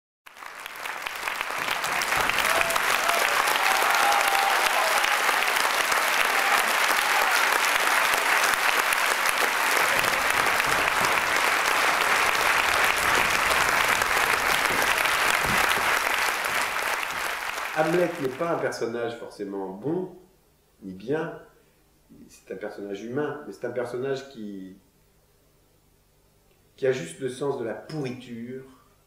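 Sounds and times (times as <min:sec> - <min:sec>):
audience applauding: 0:00.3 - 0:18.8.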